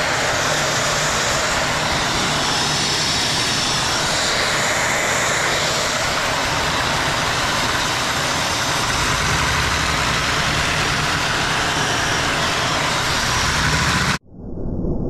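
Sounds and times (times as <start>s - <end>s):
low mechanical hum: 0.0s - 14.2s
vacuum cleaner running: 0.0s - 14.2s.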